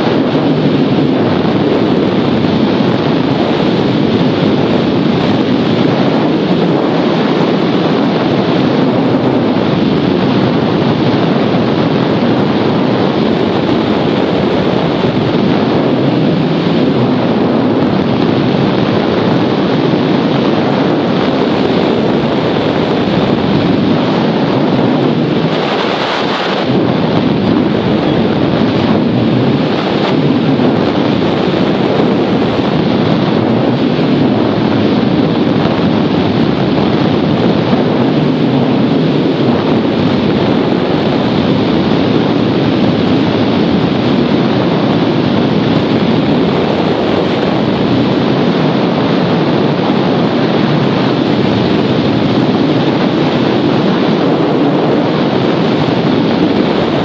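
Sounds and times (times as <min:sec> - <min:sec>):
wind rushing over microphone: 0:00.0 - 0:57.0.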